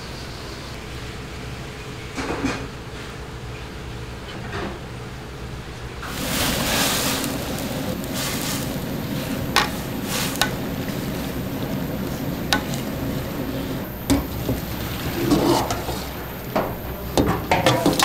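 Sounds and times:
meat sizzling in broth: 6.0s - 18.0s.

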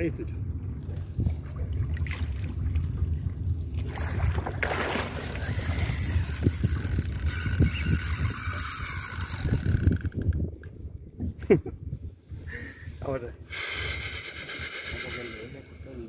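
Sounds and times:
wind buffeting microphone: 0.0s - 16.0s
water slapping boat hull: 0.5s - 10.4s
water splash: 1.2s - 3.1s, 3.8s - 5.9s.

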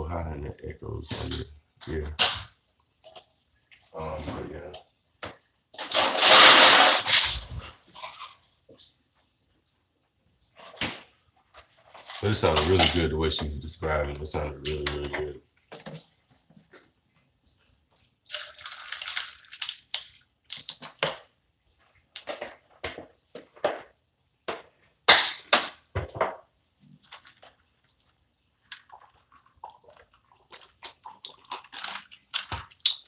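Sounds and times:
drink pouring into plastic cup: 18.2s - 19.9s, 28.7s - 32.9s.

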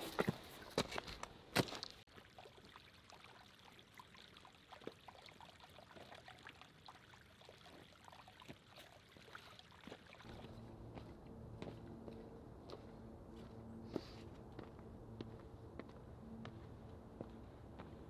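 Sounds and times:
small stream trickling: 1.6s - 10.6s
water dripping: 1.8s - 10.5s.

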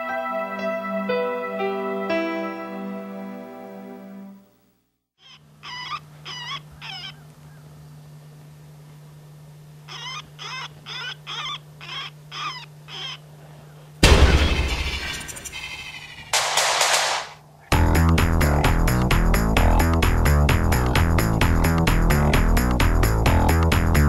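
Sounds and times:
high-pitched animal-like cries: 5.2s - 7.2s, 9.9s - 13.2s
loud sudden blast: 14.0s - 17.4s.

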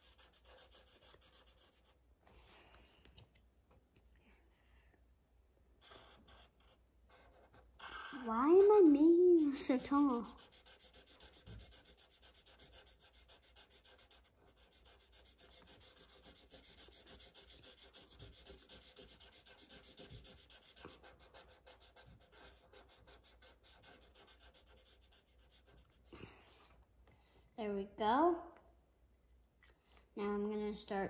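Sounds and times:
marker scratching on paper: 0.0s - 2.0s, 5.8s - 26.2s.

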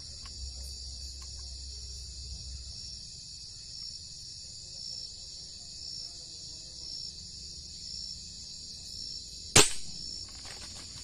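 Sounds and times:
night insects chirping: 0.0s - 11.0s
gunshot: 9.5s - 10.0s.

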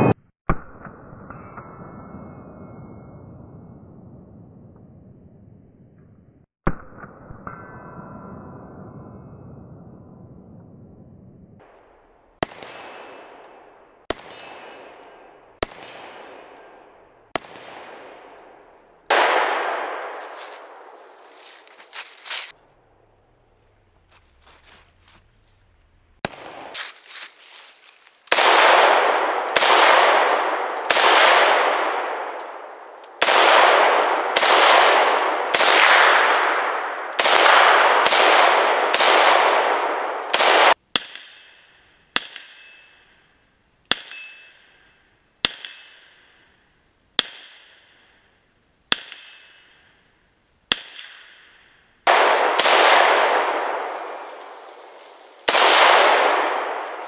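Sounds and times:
quieter cracks with ringing tone: 0.0s - 22.5s, 28.3s - 43.3s, 50.7s - 57.0s
rifle shots echoing: 12.4s - 21.5s, 28.3s - 40.8s, 50.7s - 57.0s.

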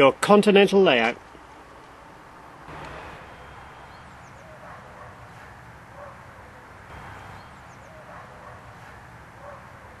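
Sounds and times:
outdoor background hiss: 0.0s - 10.0s
faint high bird chirps: 2.9s - 5.1s.

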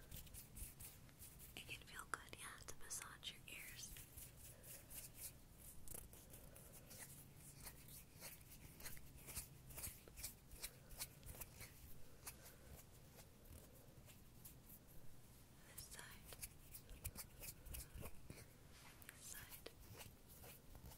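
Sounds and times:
hands and sleeve rustling: 3.9s - 15.1s.

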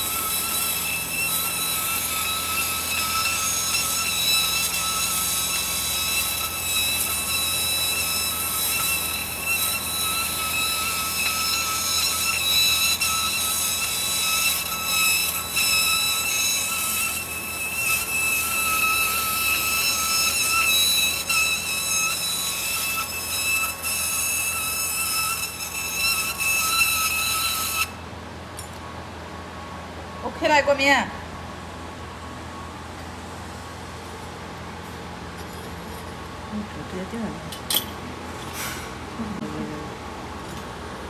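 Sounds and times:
laser machine high-pitched whine: 0.0s - 28.0s.

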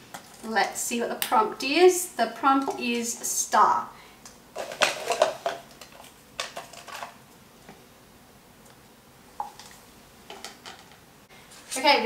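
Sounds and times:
plastic cups tapping on table: 4.6s - 5.6s.

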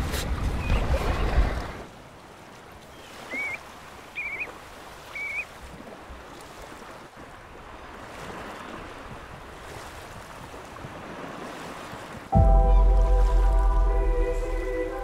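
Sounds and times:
surf: 0.0s - 15.0s
wind: 0.0s - 15.0s
plover whistled calls: 2.9s - 5.6s.

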